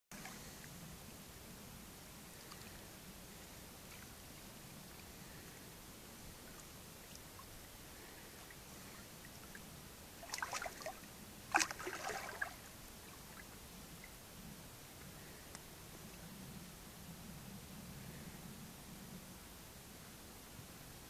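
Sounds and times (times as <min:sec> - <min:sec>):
dog splashing in shallow water: 0:08.4 - 0:13.5.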